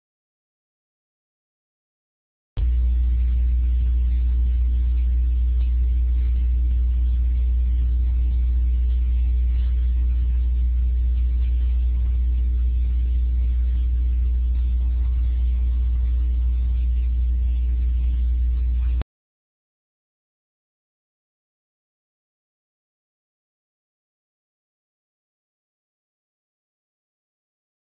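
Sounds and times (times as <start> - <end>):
loud low hum: 2.6 - 19.0.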